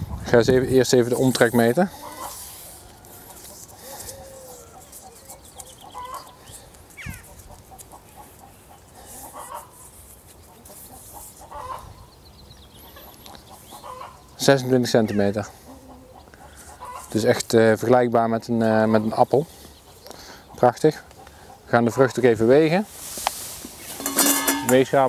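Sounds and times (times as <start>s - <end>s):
chickens clucking: 0.0s - 25.0s
high bird chirps: 4.7s - 7.4s.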